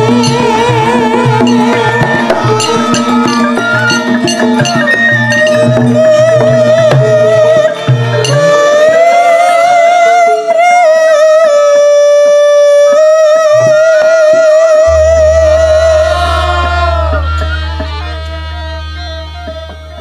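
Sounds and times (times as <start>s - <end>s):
woman singing with vibrato: 0.0s - 20.0s
low bass tone: 14.8s - 20.0s.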